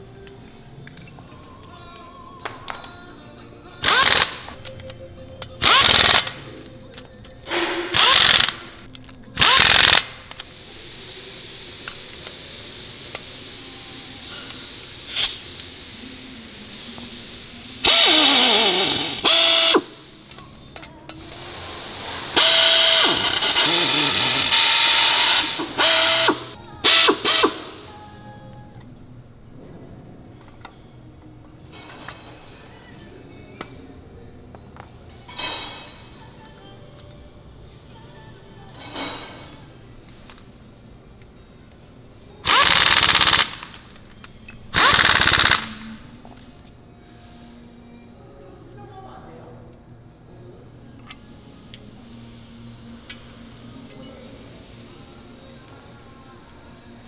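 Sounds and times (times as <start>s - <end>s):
pneumatic torque gun whining: 3.8s - 4.6s, 5.6s - 6.4s, 7.5s - 8.8s, 9.4s - 10.4s, 17.8s - 20.0s, 22.2s - 27.8s, 42.4s - 43.8s, 44.7s - 45.8s.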